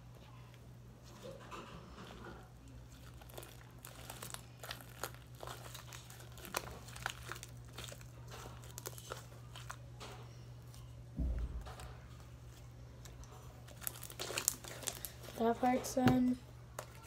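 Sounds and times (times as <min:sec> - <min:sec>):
slime crackling and popping: 0:02.9 - 0:09.8, 0:13.0 - 0:15.4.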